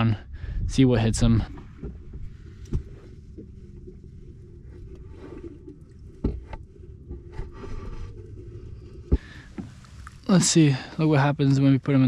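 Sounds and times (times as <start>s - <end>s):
low steady rumble: 0.0s - 12.0s
bucket knocks and scrapes: 5.0s - 9.8s.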